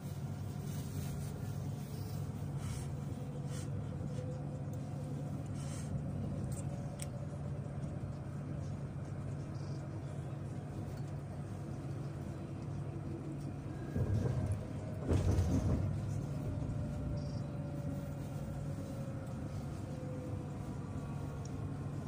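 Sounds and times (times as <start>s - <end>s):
tram motors and wheels rumbling: 0.0s - 22.0s
knocks and clunks: 13.9s - 16.5s.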